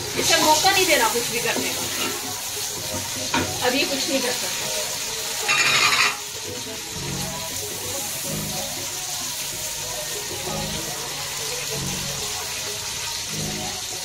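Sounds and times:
onions sizzling in hot oil: 0.0 - 14.0
spatula stirring in a pot: 0.1 - 3.6.

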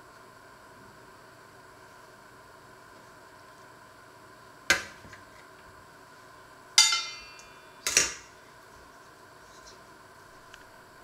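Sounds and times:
metal colander clanking: 6.8 - 8.2.

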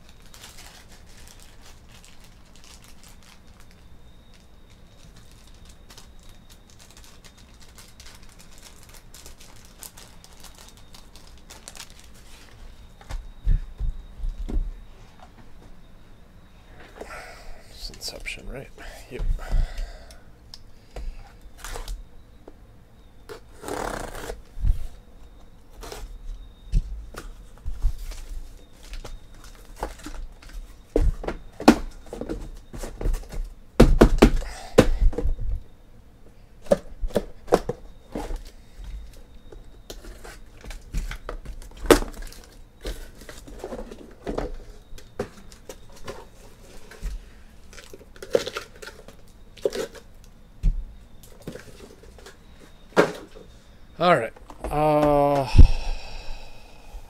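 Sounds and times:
tape and cardboard tearing: 23.3 - 24.5
boxes knocking and thudding: 30.9 - 35.6.

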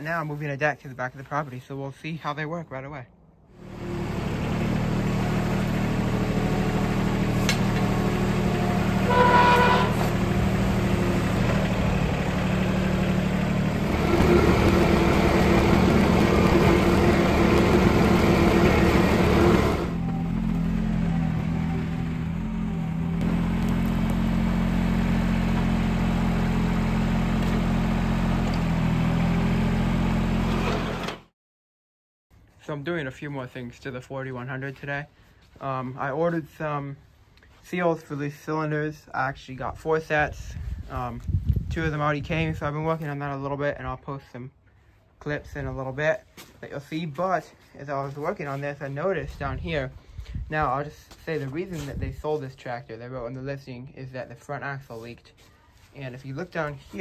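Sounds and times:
tractor diesel engine running: 3.6 - 31.2
brief higher tone: 9.1 - 10.2.

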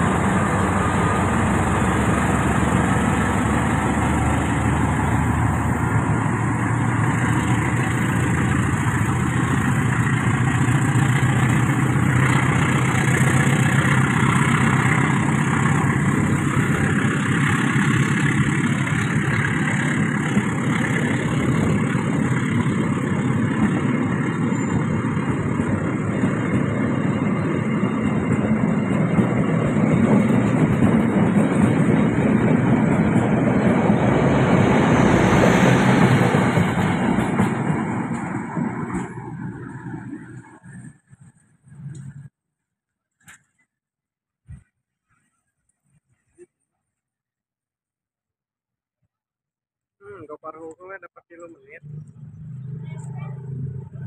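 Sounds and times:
diesel engine hum: 0.0 - 42.3, 51.4 - 54.0
train wheels on rails: 0.0 - 42.3.

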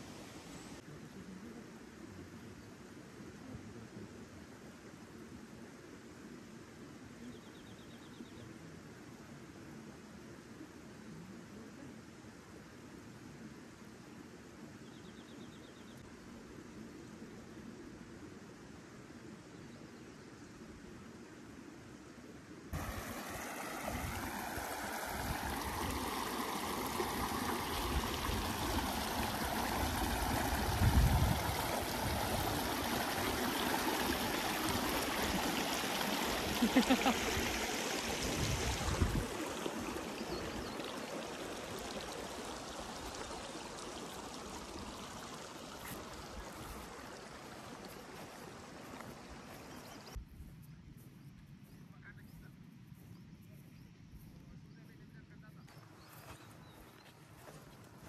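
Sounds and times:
stream running over stones: 0.0 - 1.4, 22.7 - 50.2, 55.7 - 58.0.

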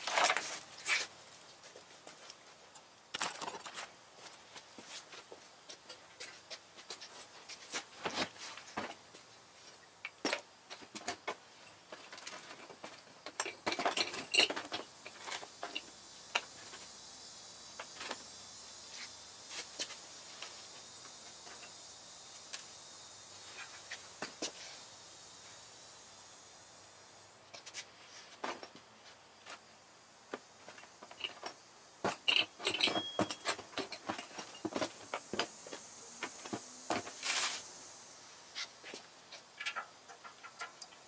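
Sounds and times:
faint steady hiss: 0.0 - 41.0
metal tools clinking: 13.3 - 15.9, 30.7 - 34.8.

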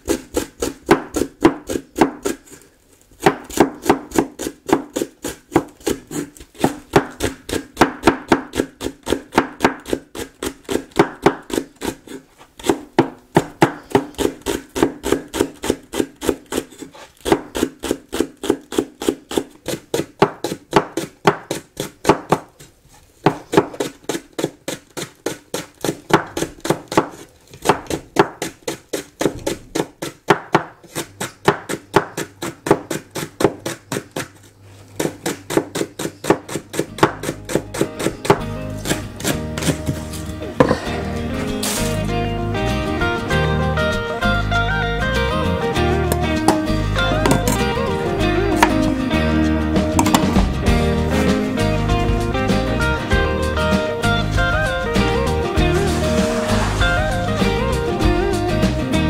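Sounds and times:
knife slicing on wooden board: 35.0 - 40.8.

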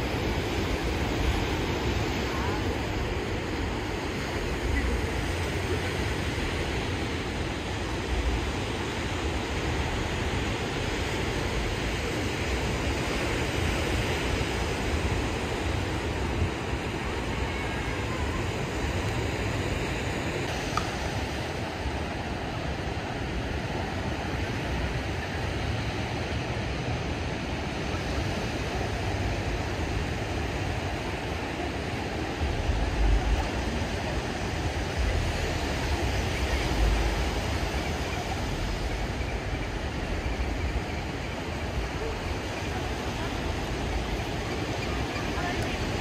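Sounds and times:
ocean surf on sandy beach: 0.0 - 46.0.

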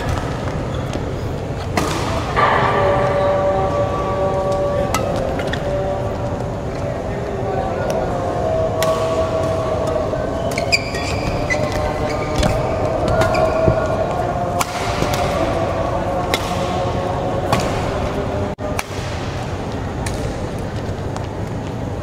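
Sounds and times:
court shoes squeaking: 0.0 - 2.5, 10.3 - 14.3
sports hall voices: 0.0 - 22.0.

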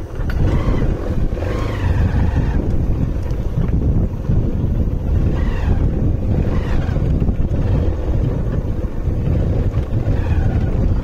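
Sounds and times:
motorcycle engine and road noise: 0.0 - 11.0
wind buffeting microphone: 0.0 - 11.0.

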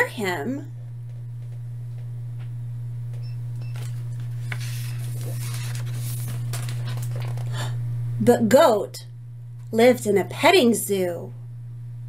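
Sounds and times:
steady low hum: 0.0 - 12.0
book page turning: 3.8 - 7.6.

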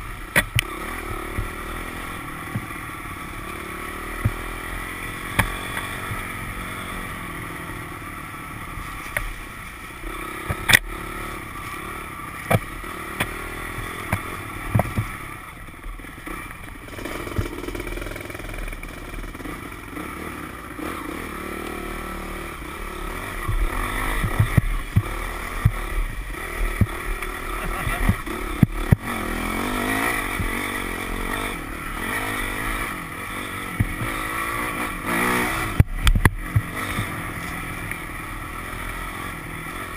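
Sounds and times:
dirt bike engine under load: 12.4 - 19.5.

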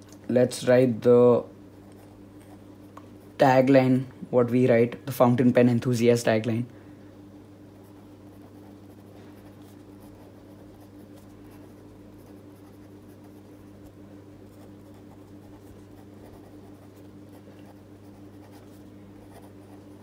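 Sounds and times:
steady low hum: 0.0 - 20.0
pen scratching on paper: 7.8 - 13.5, 14.5 - 20.0.

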